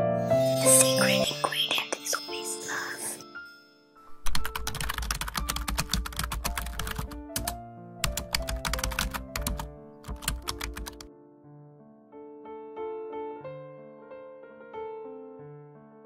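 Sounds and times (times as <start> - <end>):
background piano music: 0.0 - 16.0
rapid keyboard clicking: 4.2 - 11.1.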